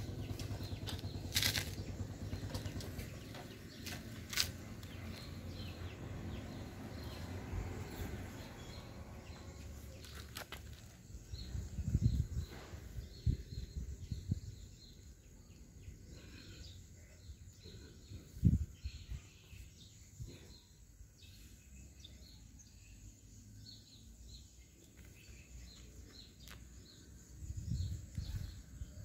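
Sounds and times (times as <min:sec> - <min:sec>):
low rumbling and rustling: 0:00.0 - 0:15.0.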